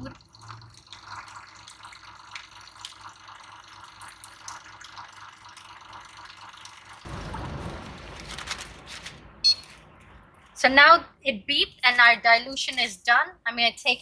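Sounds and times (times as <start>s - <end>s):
liquid trickling: 0.0s - 7.7s.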